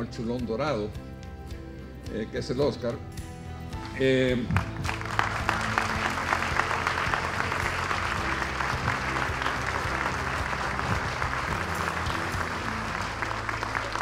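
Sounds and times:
audience applauding: 4.6 - 14.0.

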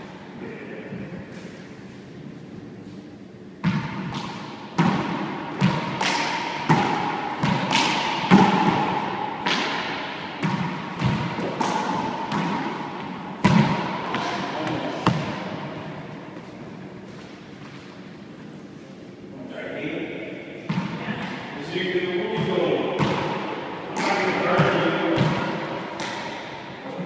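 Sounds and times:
handball smacks echoing in court: 3.6 - 18.0, 20.6 - 21.4, 22.2 - 26.8.

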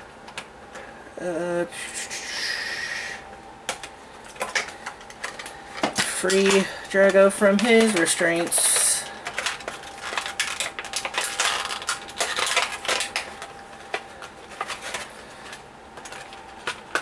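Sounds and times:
plastic packaging crinkling and clicking: 3.7 - 17.0.

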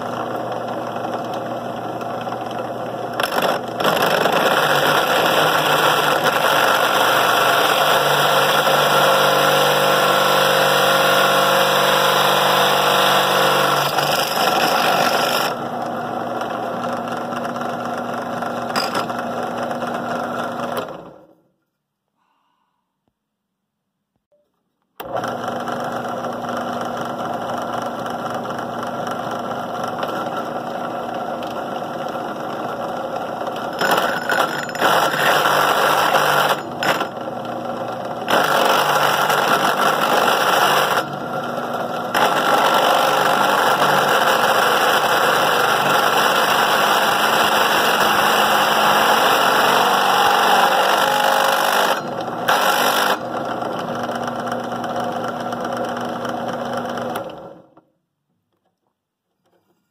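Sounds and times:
drill press motor hum: 0.0 - 21.3, 25.0 - 57.8
drill bit cutting metal: 3.2 - 15.6, 33.8 - 37.1, 38.3 - 41.1, 42.1 - 53.4.

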